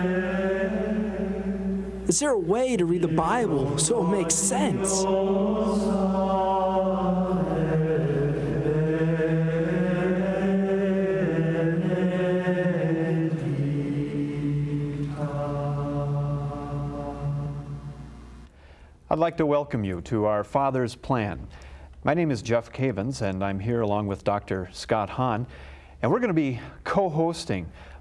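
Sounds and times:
slow chanted vocal music: 0.0s - 18.6s.

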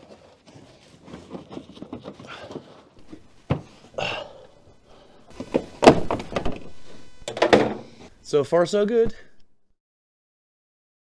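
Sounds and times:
panel scraping: 5.2s - 8.2s.

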